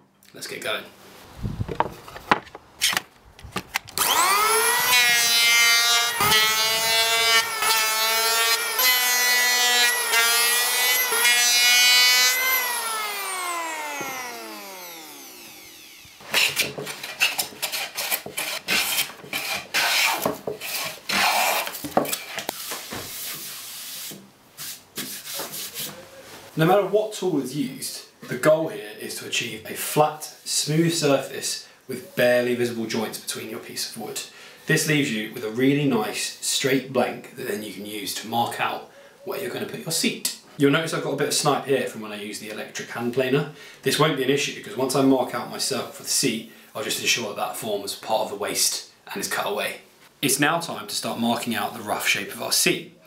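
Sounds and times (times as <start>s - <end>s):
electric hand planer running: 4.0s - 16.2s
scraping strokes on wood: 16.2s - 26.0s.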